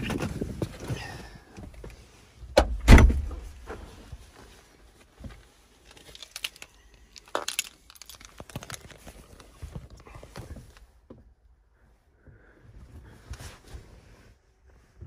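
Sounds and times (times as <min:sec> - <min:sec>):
car door shutting: 0:02.6 - 0:03.4
keys rustling and clicking: 0:05.8 - 0:10.1.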